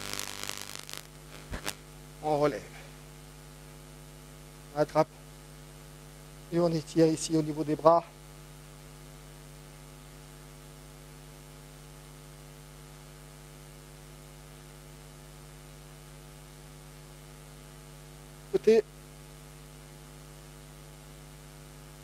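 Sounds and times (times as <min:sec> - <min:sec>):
light hiss: 0:00.0 - 0:03.0
electrical mains hum: 0:00.0 - 0:22.0.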